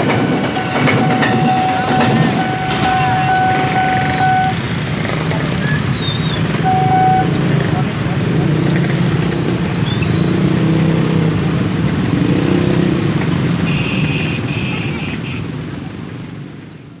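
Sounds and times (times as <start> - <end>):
motorcycle engines revving: 0.0 - 16.8
brief high tone: 0.6 - 4.6, 6.7 - 7.4.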